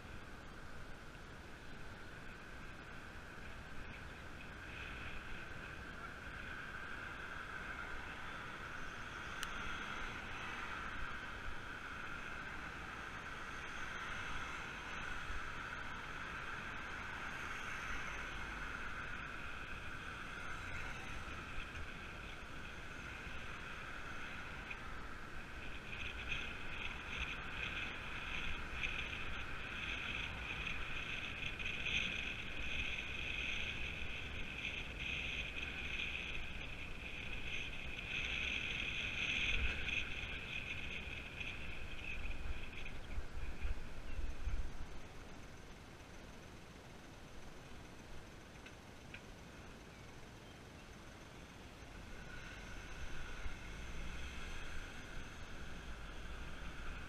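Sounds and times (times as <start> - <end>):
wind rumble on microphone: 1.6 - 45.7.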